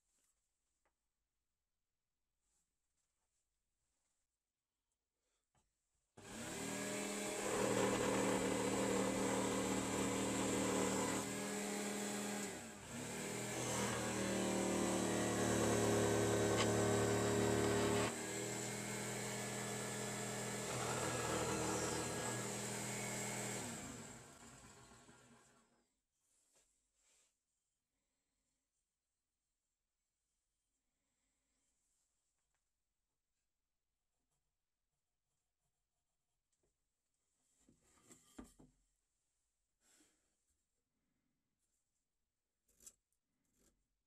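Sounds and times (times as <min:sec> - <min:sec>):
jigsaw cutting wood: 0:06.2 - 0:25.7.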